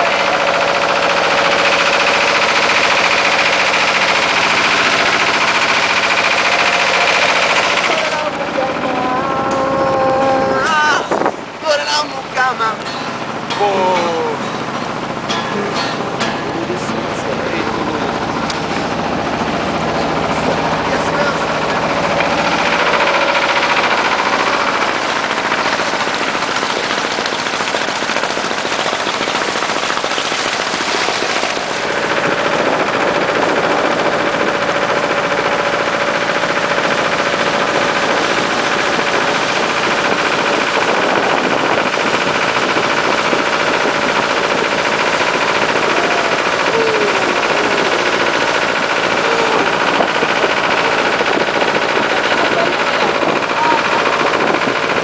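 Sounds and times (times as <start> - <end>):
motorboat engine: 0.0 - 55.0
wind and spray on microphone: 9.6 - 12.5, 17.8 - 55.0.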